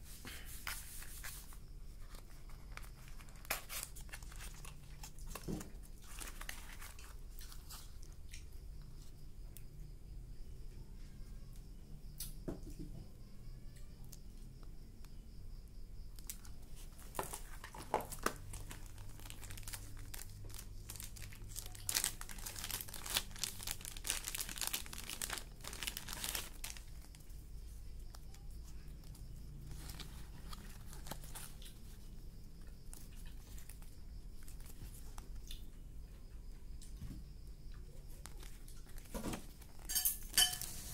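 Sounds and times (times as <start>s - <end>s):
packaging crinkling and rustling: 0.6s - 8.2s, 16.2s - 32.1s, 38.2s - 40.9s.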